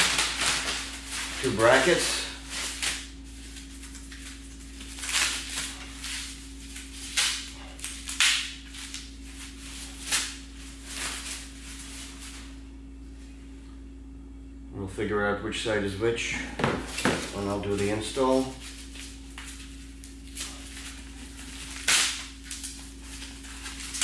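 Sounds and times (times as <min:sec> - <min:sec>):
packaging rustling: 0:00.0 - 0:12.5, 0:16.6 - 0:24.0
steady low hum: 0:00.0 - 0:24.0.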